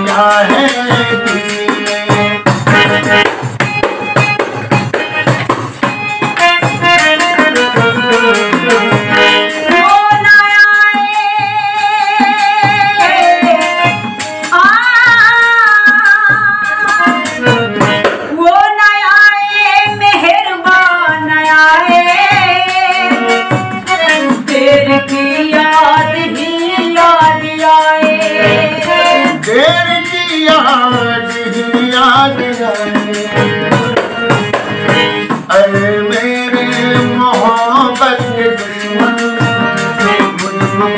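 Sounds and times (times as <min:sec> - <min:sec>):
frame drum beating: 0:00.0 - 0:09.4, 0:27.4 - 0:40.9
harmonium: 0:00.0 - 0:40.9.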